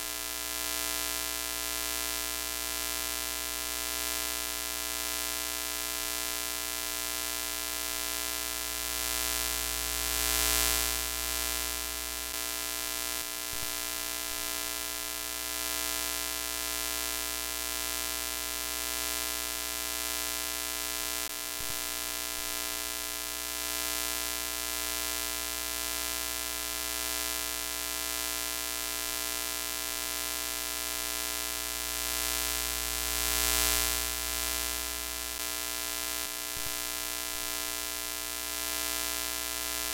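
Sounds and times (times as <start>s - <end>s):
tv static buzz and hiss: 8.2s - 13.9s, 30.0s - 39.9s.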